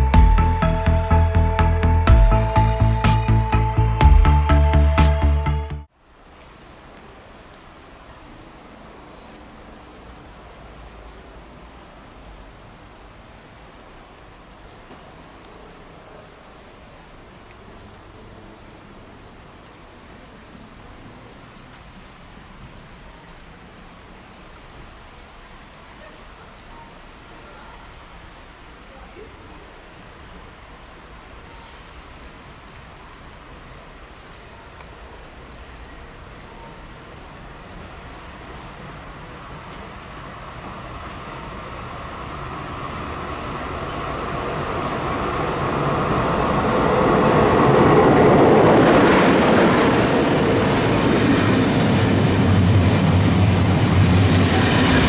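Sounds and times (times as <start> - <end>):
rain-like patter: 5.8 - 55.0.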